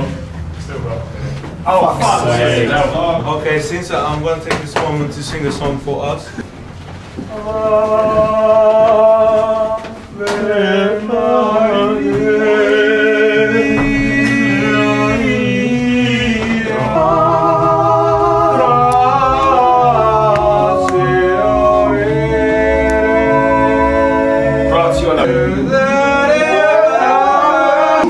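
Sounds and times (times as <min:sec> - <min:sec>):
men singing unaccompanied: 0:07.3 - 0:28.0.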